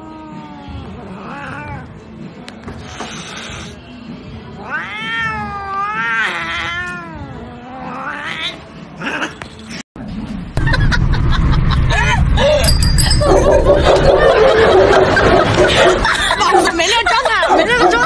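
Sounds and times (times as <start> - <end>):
cat yowling: 0.0 - 2.0, 4.6 - 9.4.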